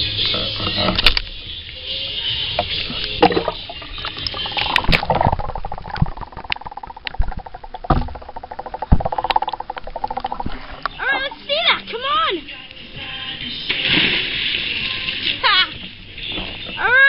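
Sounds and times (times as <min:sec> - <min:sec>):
underwater bubbling and gurgling: 0:02.6 - 0:11.6.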